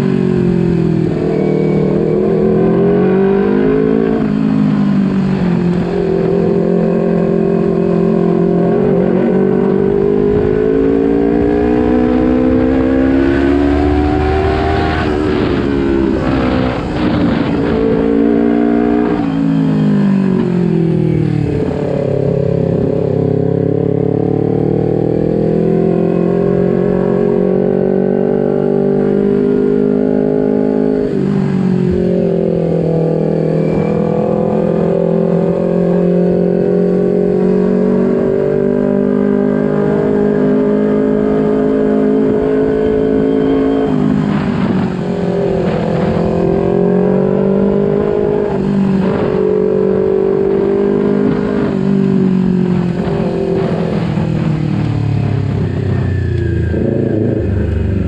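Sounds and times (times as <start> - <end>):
motorcycle engine running: 39.8 - 58.0.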